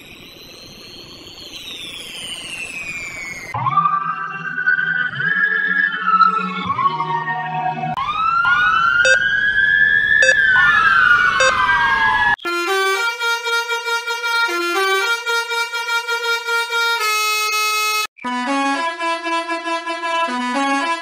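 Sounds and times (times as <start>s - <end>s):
siren wailing: 8.0s - 12.4s.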